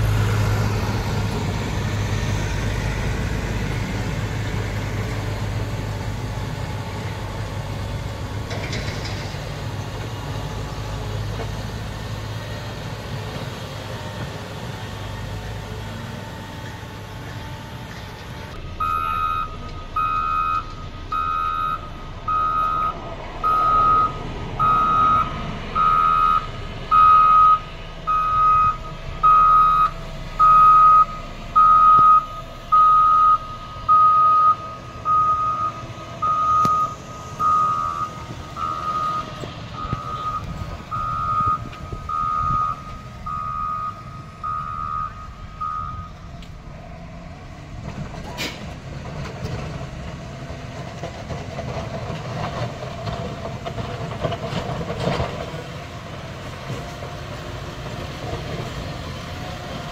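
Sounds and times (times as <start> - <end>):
diesel engine running: 0.0 - 59.9
reversing alarm beeping: 18.8 - 46.3.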